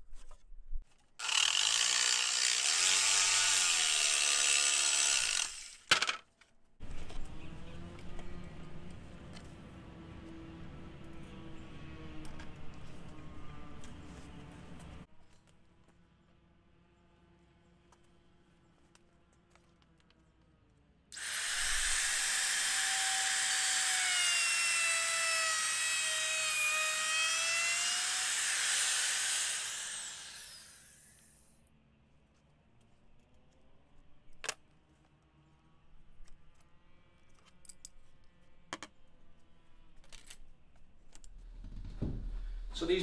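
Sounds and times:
electric router whining: 0:21.2 - 0:31.3.

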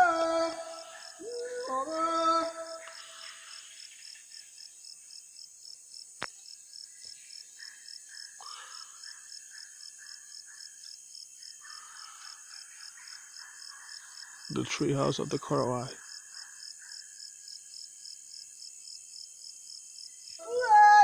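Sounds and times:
high insect hiss: 0:00.0 - 0:21.0
high pulsing animal call: 0:20.4 - 0:21.0.

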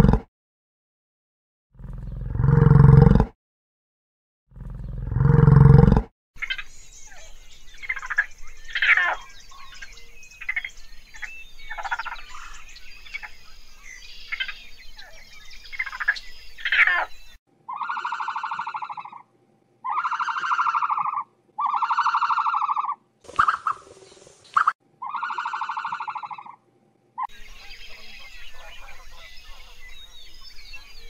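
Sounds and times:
raccoons chittering and squealing: 0:06.4 - 0:13.4, 0:14.3 - 0:19.2, 0:19.8 - 0:26.6.

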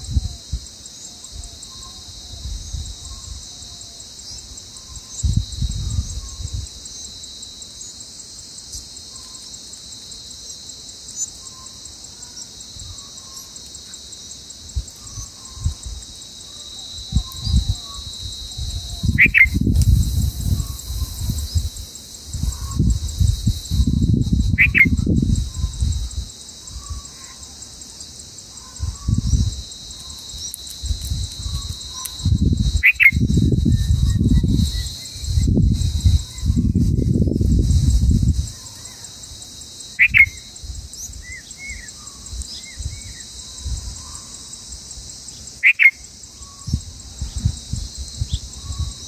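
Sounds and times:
high-pitched insect chorus: 0:00.0 - 0:49.0
small bird chirps: 0:16.6 - 0:19.8, 0:23.8 - 0:25.9, 0:31.4 - 0:33.2, 0:40.0 - 0:40.5, 0:45.6 - 0:46.8
higher bird calls: 0:17.1 - 0:19.7, 0:24.5 - 0:25.0, 0:32.8 - 0:33.2, 0:40.0 - 0:40.5, 0:45.6 - 0:46.6.

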